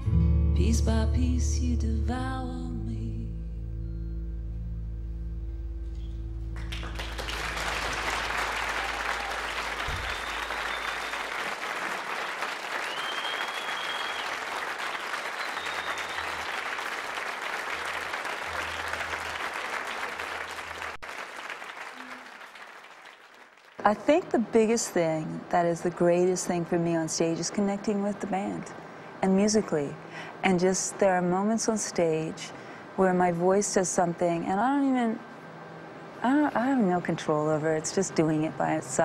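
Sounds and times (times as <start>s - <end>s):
audience applause: 6.6s - 23.8s
whistles from audience: 6.7s - 17.0s.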